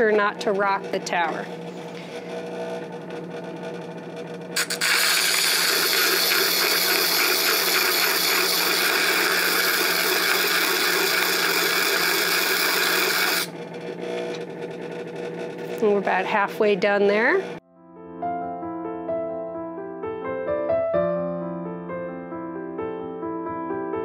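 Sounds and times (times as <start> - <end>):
motor humming: 0.0 - 17.6
grinding hiss on diamond wheel: 4.6 - 13.5.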